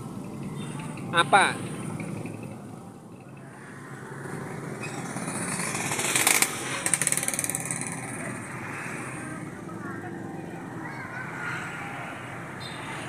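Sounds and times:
motorcycle passing by: 3.8s - 13.0s.

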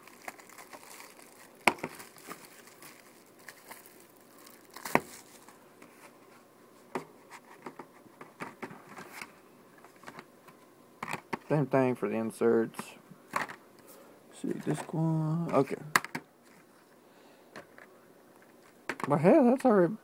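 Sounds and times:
plastic wrap crinkling and tearing: 0.0s - 5.6s.

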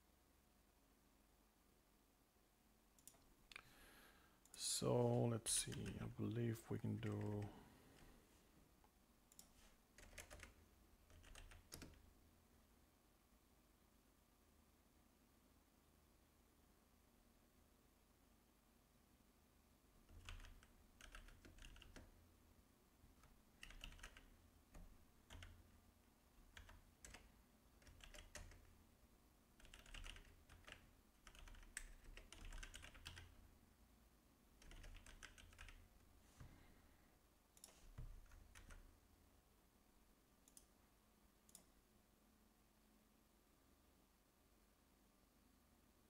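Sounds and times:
faint typing on keyboard: 2.9s - 3.8s, 4.4s - 8.2s, 9.3s - 12.2s, 20.0s - 28.9s, 29.5s - 33.6s, 34.6s - 36.7s, 37.5s - 39.0s, 40.4s - 41.8s.

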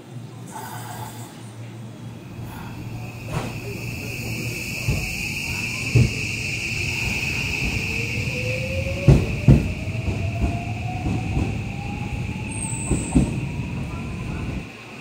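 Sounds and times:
train wheels clacking over rail joints: 8.9s - 11.6s.

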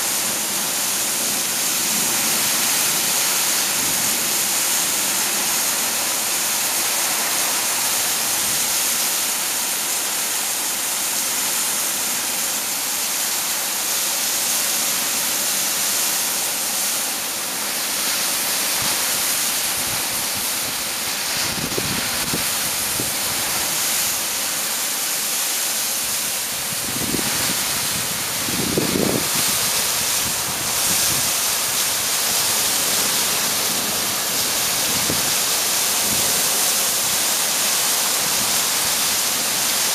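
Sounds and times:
torrential rain hissing: 0.0s - 39.9s
strong wind: 18.7s - 24.5s, 26.0s - 37.2s.

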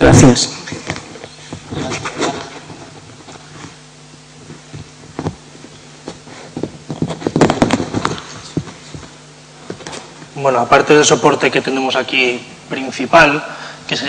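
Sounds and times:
microphone handling clicks and rustles: 0.0s - 10.4s.

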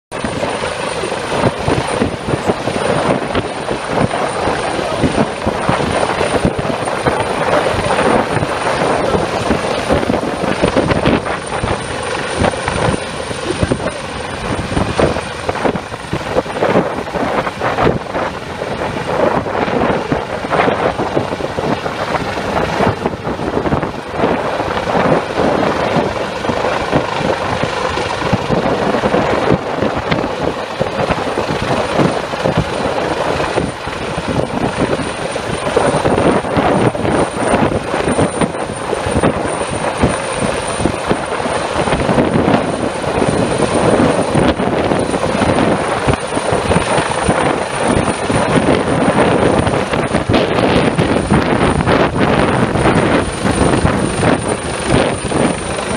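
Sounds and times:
helicopter hovering: 0.1s - 55.9s.

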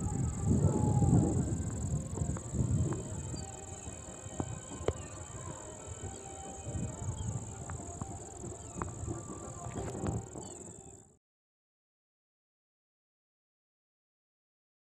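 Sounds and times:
crickets chirping: 0.0s - 11.2s.

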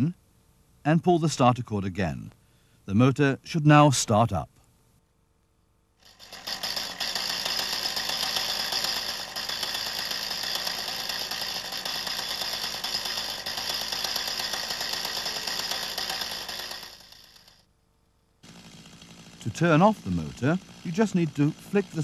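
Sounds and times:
small two-stroke engine buzzing: 6.0s - 17.6s, 18.4s - 22.0s.

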